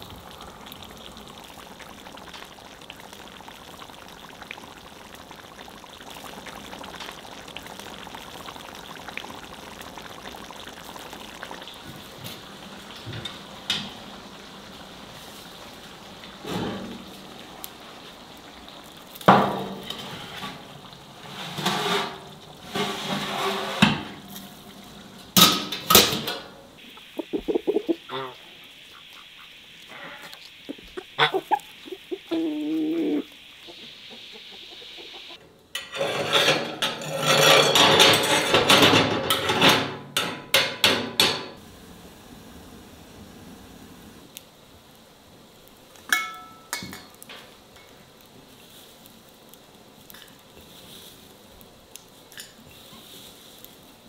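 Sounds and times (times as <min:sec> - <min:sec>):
sauce sizzling in a pan: 0:00.0 - 0:26.0, 0:26.8 - 0:40.2, 0:40.8 - 0:54.0
poultry calling: 0:26.8 - 0:35.4.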